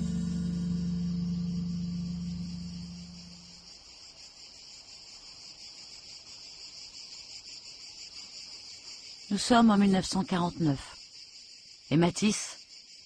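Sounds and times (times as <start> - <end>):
low music note: 0.0 - 3.5
insects chirping: 0.0 - 13.0.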